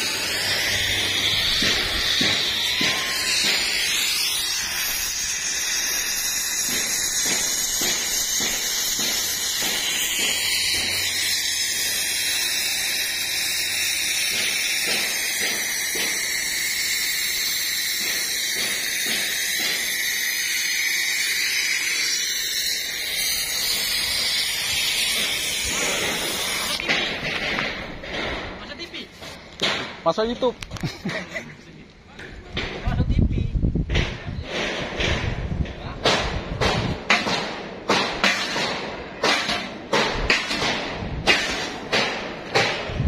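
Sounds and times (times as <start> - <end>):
steady high hiss: 0.0 - 26.8.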